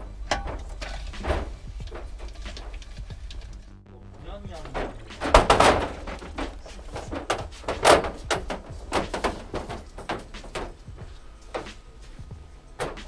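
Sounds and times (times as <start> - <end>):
wheel knocks and clunks: 0.0 - 3.8, 4.4 - 13.0
loud thud: 4.6 - 6.4.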